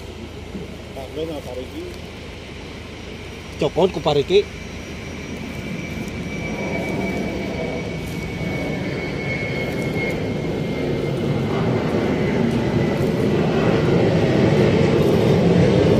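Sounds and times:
faint high whine: 0.0s - 15.9s
tractor engine rumble: 0.0s - 15.9s.

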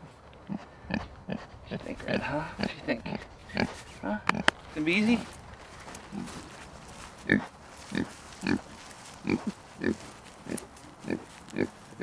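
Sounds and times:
pig grunting: 0.4s - 4.5s, 6.1s - 6.5s, 7.2s - 11.8s.

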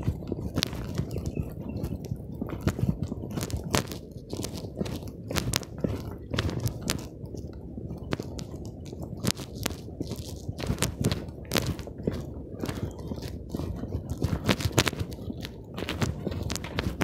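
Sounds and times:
phone microphone handling crackles: 0.0s - 17.0s.

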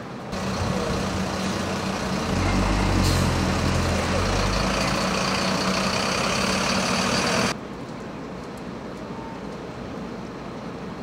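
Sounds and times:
diesel truck engine idling: 0.3s - 7.6s.

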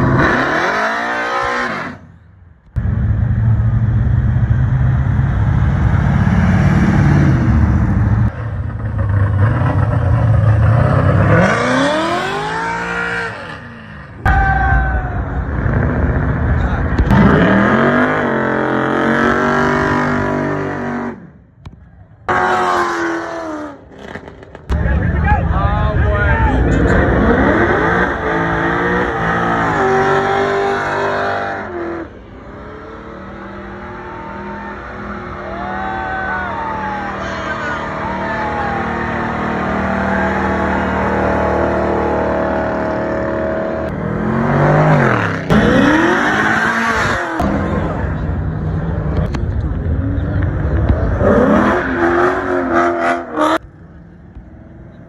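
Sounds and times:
car engine revving: 0.0s - 2.1s, 2.7s - 14.3s, 15.0s - 25.2s, 25.8s - 54.8s
engine at high revs: 0.0s - 2.1s, 9.0s - 14.2s, 17.0s - 21.3s, 26.8s - 34.3s, 37.5s - 53.6s.

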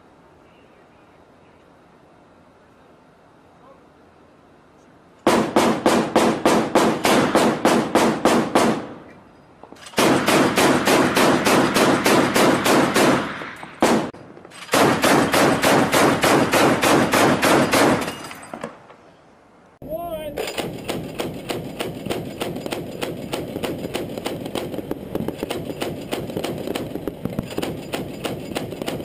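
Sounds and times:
chain gun firing bursts: 5.2s - 9.0s, 9.8s - 18.4s, 20.4s - 29.0s.

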